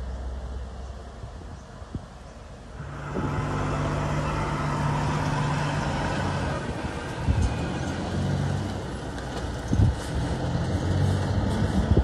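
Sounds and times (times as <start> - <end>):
truck diesel engine idling: 2.8 - 9.6.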